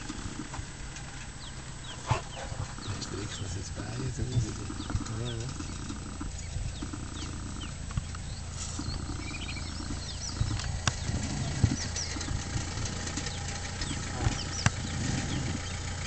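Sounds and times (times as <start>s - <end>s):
lions chewing and crunching bone: 0.0s - 16.0s.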